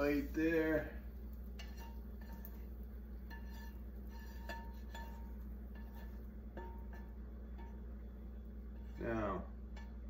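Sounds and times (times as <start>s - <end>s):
steady low hum: 0.0s - 10.0s
spatula clinking in frying pan: 1.6s - 7.9s.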